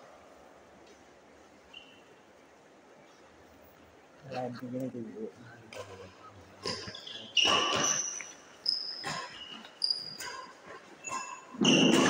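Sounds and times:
rackets hitting shuttlecock: 0:06.6 - 0:08.3, 0:10.2 - 0:12.0
shoes squeaking on court: 0:06.6 - 0:12.0.

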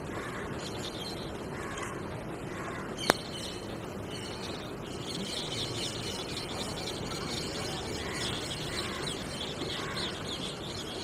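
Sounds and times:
small birds chirping: 0:00.1 - 0:02.0, 0:02.6 - 0:11.0
crows cawing: 0:01.5 - 0:03.6, 0:04.5 - 0:10.5.

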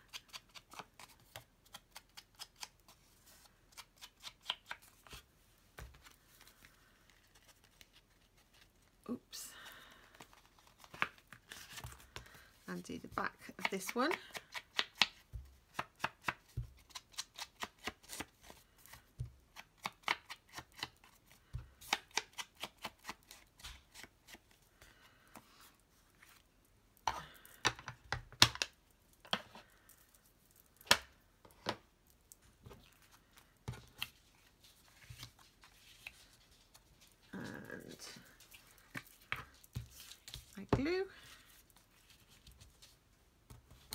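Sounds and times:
foam tool tapping paper: 0:13.4 - 0:18.2.

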